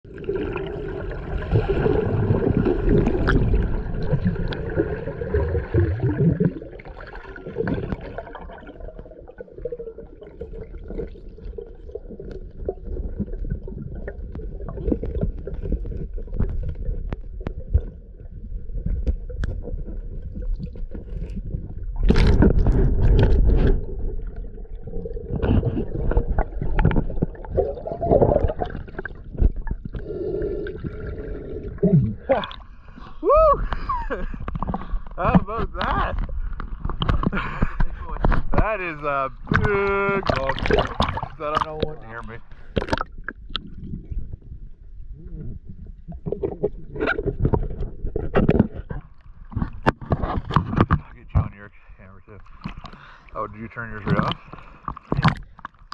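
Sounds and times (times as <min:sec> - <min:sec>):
bubbles gurgling: 0:00.0 - 0:51.4, 0:52.0 - 0:55.9
underwater water rushing: 0:00.0 - 0:55.9
underwater clicks: 0:02.6 - 0:04.9, 0:20.5 - 0:30.1, 0:33.7 - 0:44.3, 0:46.1 - 0:51.6, 0:52.4 - 0:55.9.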